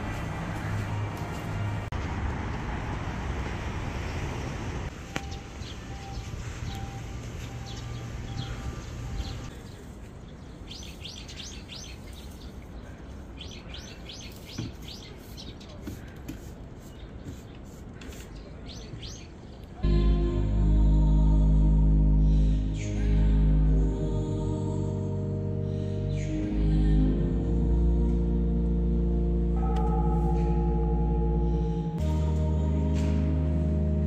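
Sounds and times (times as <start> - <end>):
small birds chirping: 5.1 - 19.8
low rumble and hum: 19.8 - 34.0.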